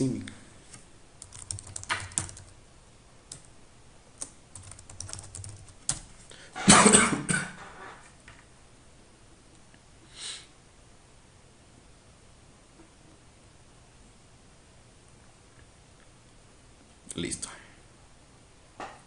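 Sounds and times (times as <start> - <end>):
keyboard typing: 0.7 - 2.6, 3.3 - 3.5, 4.2 - 6.1.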